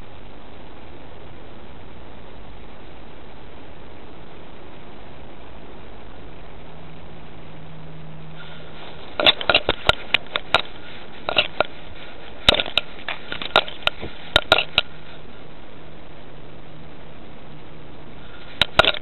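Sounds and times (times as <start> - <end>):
microphone hiss: 0.0 - 19.0
plants brushing against camera: 8.4 - 15.4.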